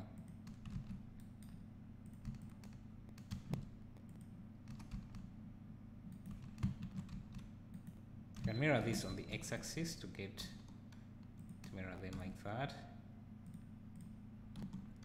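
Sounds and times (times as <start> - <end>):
steady low hum: 0.0 - 15.0
keyboard keystrokes: 13.4 - 15.0.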